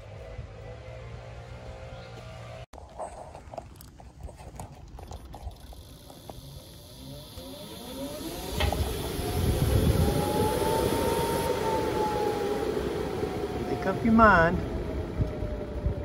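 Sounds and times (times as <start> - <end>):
blower motor humming: 5.1 - 16.0
rush of moving air with whine: 5.8 - 16.0.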